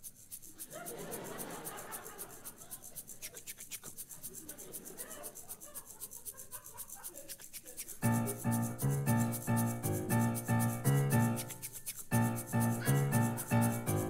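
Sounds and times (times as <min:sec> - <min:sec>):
scratchy swishing rhythm: 0:00.0 - 0:14.0
piano chords: 0:08.0 - 0:14.0.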